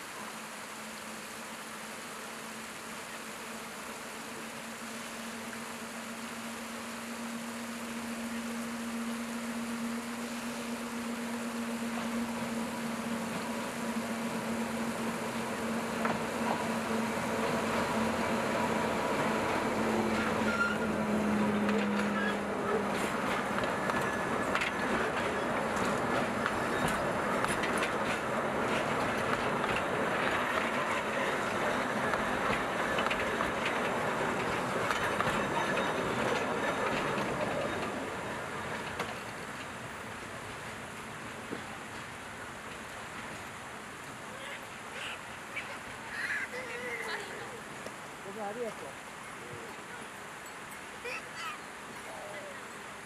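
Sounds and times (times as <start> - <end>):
diesel locomotive engine hum: 0.0 - 53.0
train wheels rumbling on rails: 7.3 - 50.9
light clicks of rail wheels: 9.8 - 51.0.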